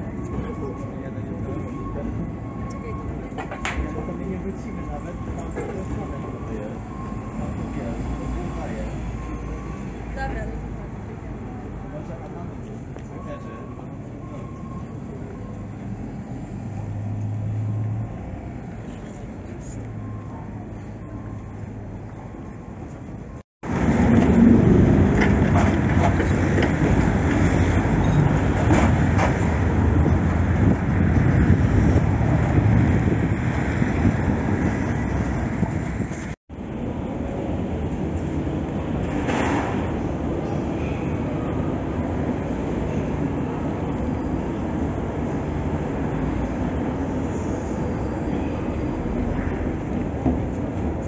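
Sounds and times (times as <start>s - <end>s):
tram running past: 20.0s - 51.0s
escalator rumbling: 23.6s - 36.4s.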